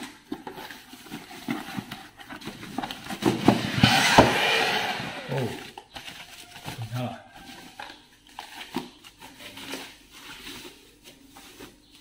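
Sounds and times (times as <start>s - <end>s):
plastic wrapping crinkling: 0.0s - 3.4s, 5.2s - 12.0s
cardboard knocking and scraping: 0.2s - 6.0s.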